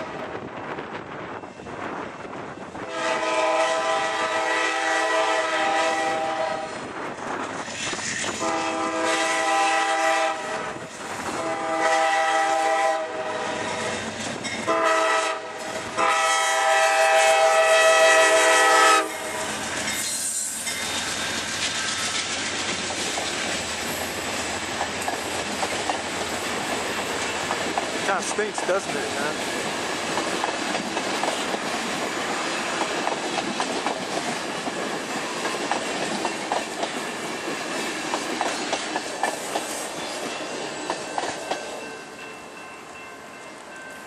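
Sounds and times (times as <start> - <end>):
locomotive air horn blasts: 2.8 - 6.8, 8.4 - 10.8, 11.4 - 13.9, 14.7 - 19.5
train cars clacking over rails: 19.0 - 44.0.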